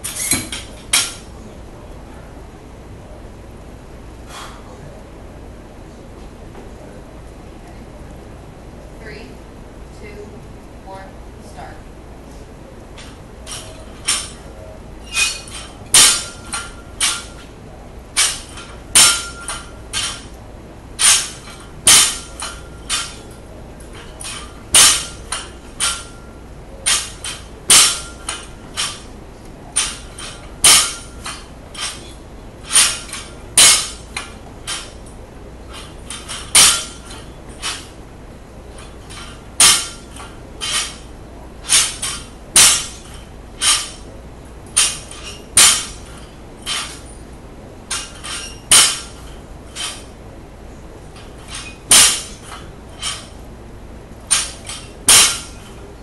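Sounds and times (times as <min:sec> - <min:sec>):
weight plates rattling: 0:15.0 - 0:17.5, 0:18.2 - 0:20.3, 0:21.0 - 0:29.1, 0:29.7 - 0:35.0, 0:35.7 - 0:38.0, 0:38.6 - 0:44.1, 0:44.8 - 0:47.2, 0:47.9 - 0:50.1, 0:51.2 - 0:53.4, 0:54.2 - 0:55.9
barbell crashing onto rubber platform: 0:15.2 - 0:17.4, 0:18.2 - 0:20.3, 0:21.0 - 0:23.2, 0:24.0 - 0:26.2, 0:26.8 - 0:29.1, 0:29.8 - 0:32.0, 0:32.6 - 0:35.0, 0:35.7 - 0:37.9, 0:38.8 - 0:44.0, 0:44.8 - 0:47.0, 0:47.9 - 0:50.1, 0:51.4 - 0:53.4, 0:54.3 - 0:55.7.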